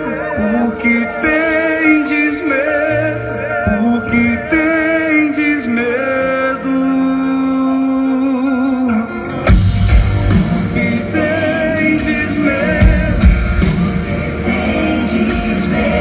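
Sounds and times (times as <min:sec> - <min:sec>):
person singing: 0:00.0 - 0:09.4, 0:10.2 - 0:16.0
drums and bass: 0:09.4 - 0:16.0.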